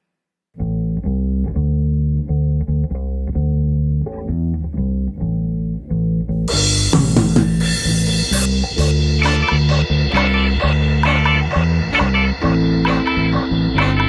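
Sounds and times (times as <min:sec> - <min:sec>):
bass guitar riff: 0:00.6 - 0:14.0
ska punk band playing: 0:06.5 - 0:14.0.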